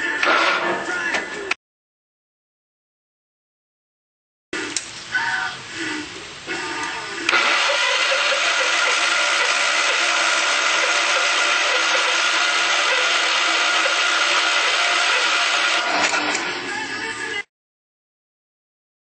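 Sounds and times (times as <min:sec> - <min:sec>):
lawn tractor engine drone: 0:06.8 - 0:16.8.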